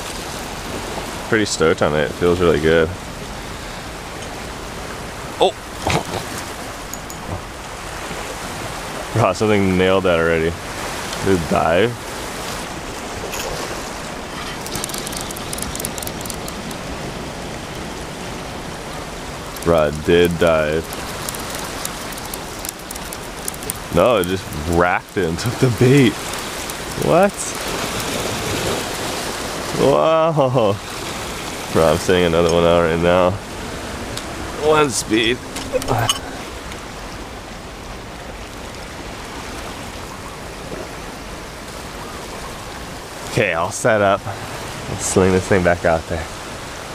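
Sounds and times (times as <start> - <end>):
ocean surf breaking on rocks: 0.0 - 46.9
faint high ticks: 14.6 - 16.9, 19.4 - 25.3, 26.0 - 28.3.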